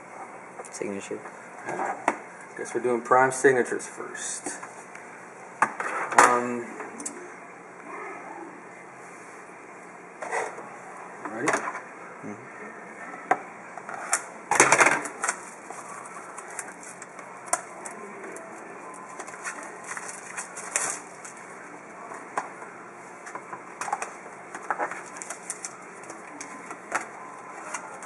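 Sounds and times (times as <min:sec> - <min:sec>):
loud plastic crackling: 0:19.0 - 0:21.5, 0:23.7 - 0:28.0
plastic wrapper crinkling: 0:24.0 - 0:28.0.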